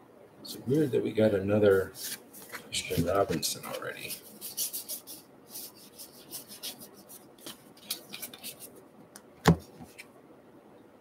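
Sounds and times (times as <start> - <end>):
cards flipped papery swishes: 2.0 - 8.7.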